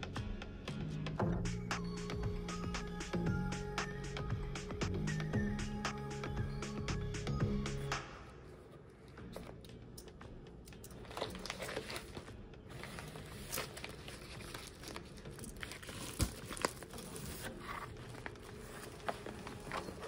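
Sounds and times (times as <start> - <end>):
plastic crinkling and rustling: 10.9 - 20.0
plastic tearing: 11.0 - 20.0.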